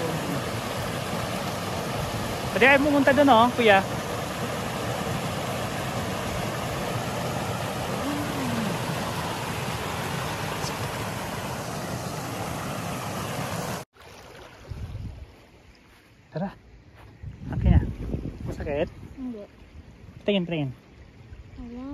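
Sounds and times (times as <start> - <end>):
water rushing over rocks: 0.0 - 14.6.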